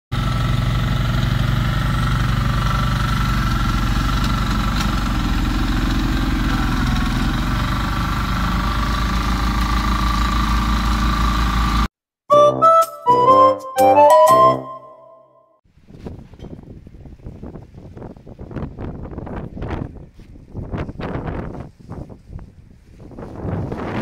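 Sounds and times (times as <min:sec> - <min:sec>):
diesel engines running: 0:00.1 - 0:11.9.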